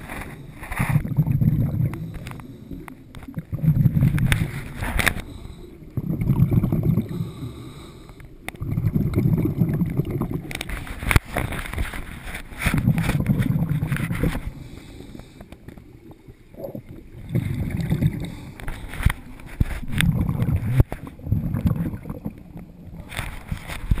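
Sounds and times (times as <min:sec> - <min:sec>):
diver's breath bubbling: 0:00.0 - 0:11.4, 0:12.6 - 0:24.0.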